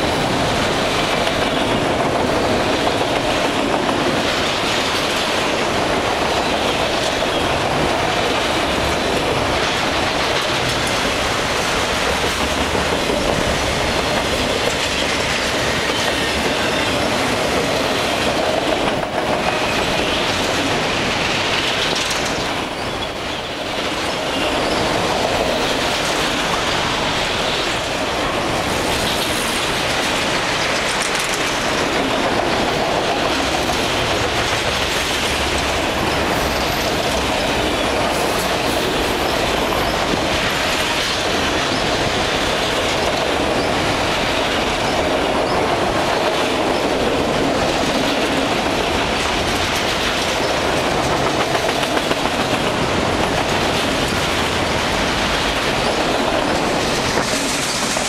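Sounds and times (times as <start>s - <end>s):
freight train wheels rumbling: 0.0s - 58.0s
train wheel squeal: 14.0s - 18.2s, 21.6s - 25.3s, 34.9s - 42.2s, 43.4s - 45.8s.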